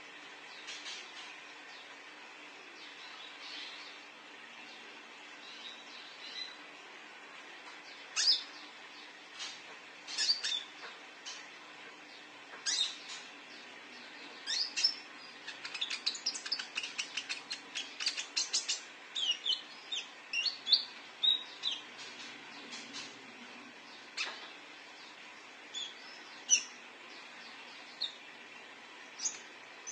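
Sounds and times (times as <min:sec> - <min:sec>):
sunbird chirping: 0:07.9 - 0:09.5, 0:10.1 - 0:11.4, 0:12.1 - 0:23.2, 0:23.8 - 0:28.3, 0:29.0 - 0:29.9.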